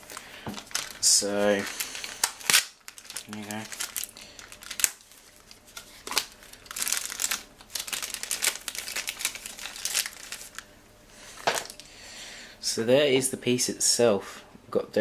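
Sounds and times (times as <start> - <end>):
plastic bag crinkling: 0.0 - 11.9.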